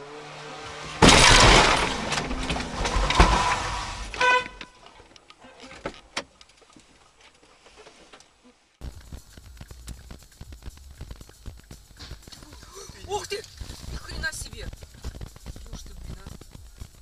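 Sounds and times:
harsh car horn blast: 0:04.0 - 0:04.8
short clear horn toot: 0:04.1 - 0:04.8.

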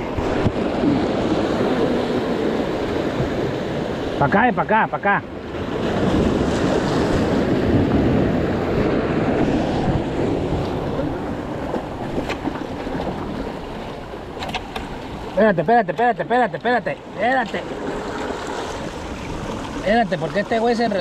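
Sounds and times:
wind buffeting microphone: 0:05.4 - 0:15.4.

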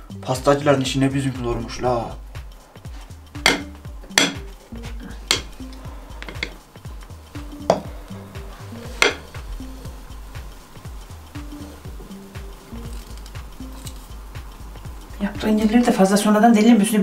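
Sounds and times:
background music with steady beat: 0:00.0 - 0:17.0
metal utensil clinking on dish: 0:03.4 - 0:04.5.

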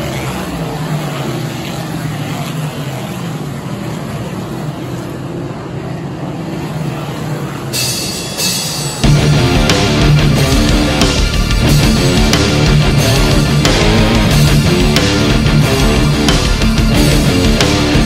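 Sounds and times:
race car engines droning: 0:00.0 - 0:18.0
heavy rock music: 0:07.8 - 0:18.0.

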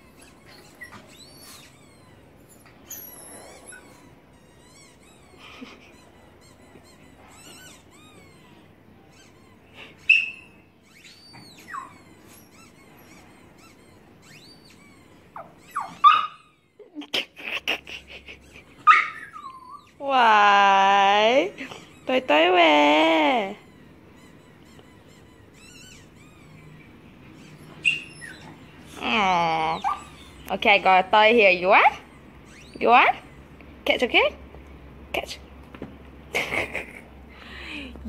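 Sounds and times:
small dog whining: 0:00.0 - 0:20.0, 0:23.4 - 0:30.5, 0:31.8 - 0:33.4.

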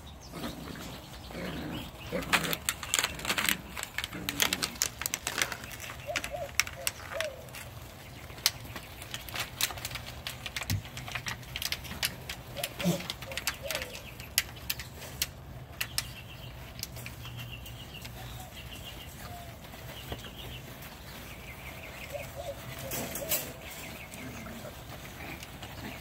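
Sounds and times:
puppies scuffling: 0:00.1 - 0:26.0
bird chirping trills: 0:12.5 - 0:26.0.

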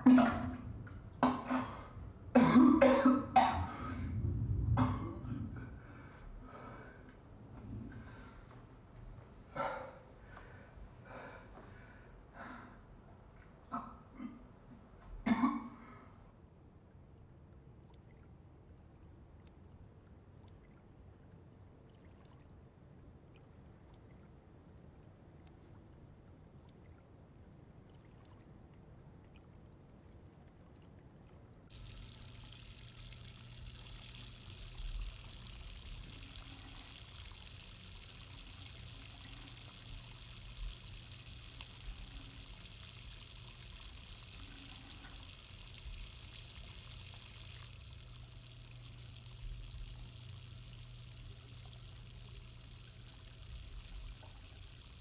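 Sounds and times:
running water: 0:00.0 - 0:04.2, 0:31.7 - 0:55.0.

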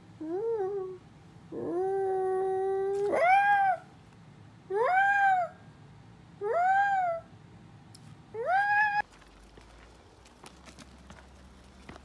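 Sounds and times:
dog whining and howling: 0:00.2 - 0:03.9, 0:04.7 - 0:05.6, 0:06.4 - 0:07.3, 0:08.4 - 0:09.0.

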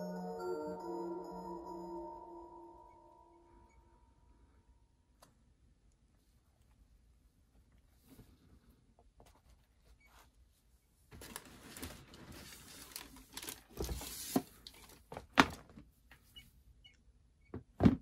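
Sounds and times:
tissue paper rustling: 0:11.2 - 0:14.4.

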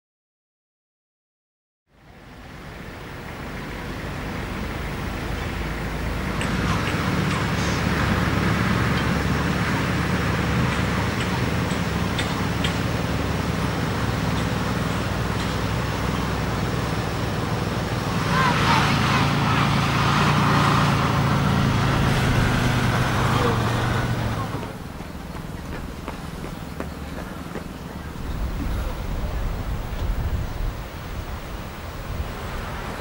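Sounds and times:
lorry engine driving by: 0:01.9 - 0:33.0.

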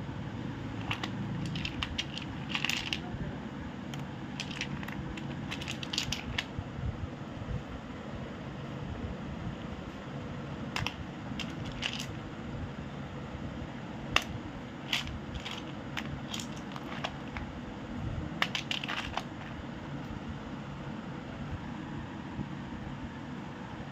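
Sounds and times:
low background noise: 0:00.0 - 0:23.9
clay pieces clinking on plate: 0:18.4 - 0:19.5.

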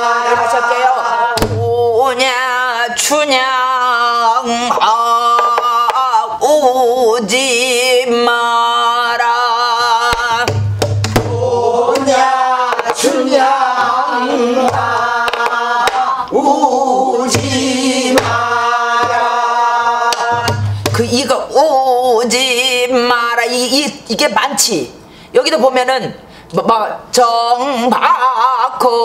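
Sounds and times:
woman singing with vibrato: 0:00.0 - 0:10.5
barrel drum strokes: 0:10.2 - 0:13.0, 0:17.3 - 0:19.3, 0:20.3 - 0:21.1.

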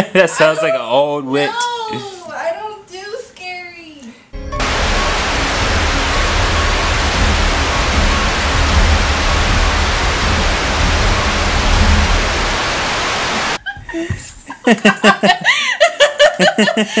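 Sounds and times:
low rumble: 0:04.6 - 0:13.6
television static hiss: 0:04.6 - 0:13.6.

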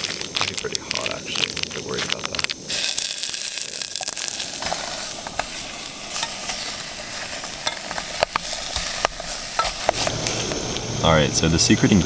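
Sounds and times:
stirring clicks: 0:00.0 - 0:02.7, 0:04.6 - 0:10.1
tofu sizzling in a pot: 0:02.7 - 0:10.2.

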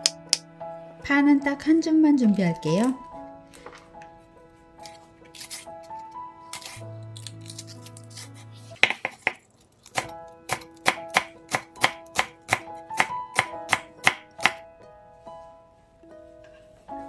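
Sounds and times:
knife chopping on wooden board: 0:08.8 - 0:14.6.

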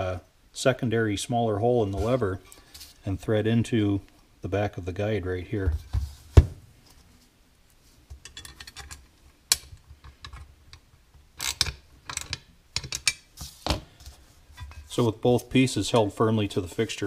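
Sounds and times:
metal parts clicking and clinking: 0:11.4 - 0:13.2.

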